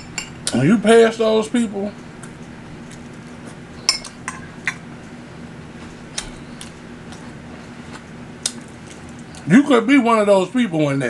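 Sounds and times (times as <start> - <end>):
faint steady hum: 0.0 - 11.0
fork clinking on plate: 3.9 - 4.8.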